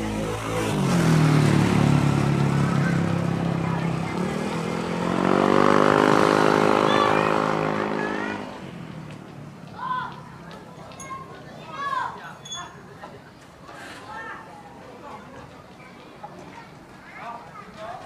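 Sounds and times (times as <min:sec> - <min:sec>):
vehicle engines passing: 0:00.0 - 0:12.4.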